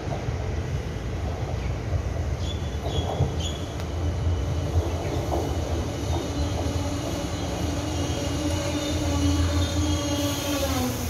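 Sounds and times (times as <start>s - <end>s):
train rumbling: 0.0s - 11.0s
train motor whine: 6.0s - 11.0s.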